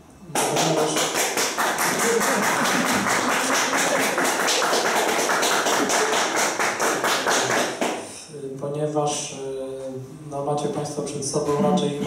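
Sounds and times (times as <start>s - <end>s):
audience applauding: 0.3s - 8.0s.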